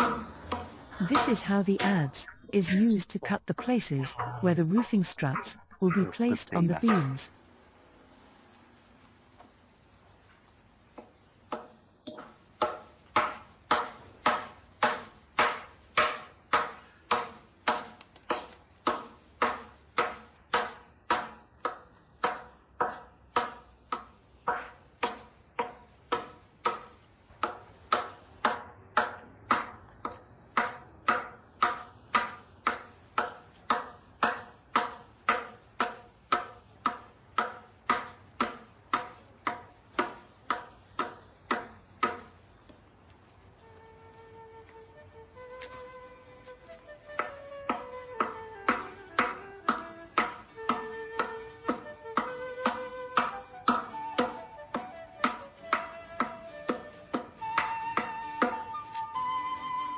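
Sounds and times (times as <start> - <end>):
adze chopping wood: 0.0 - 2.1, 11.5 - 42.3, 46.4 - 59.1.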